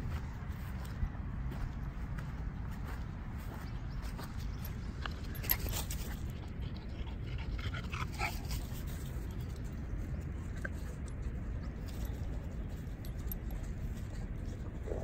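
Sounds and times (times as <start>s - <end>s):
dogs panting: 4.6s - 12.1s.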